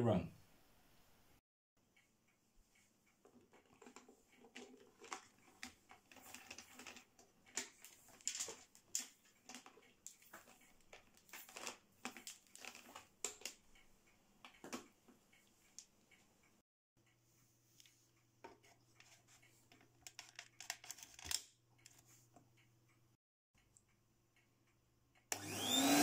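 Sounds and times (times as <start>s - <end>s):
cable rustling: 3.2s - 13.6s, 18.5s - 22.2s.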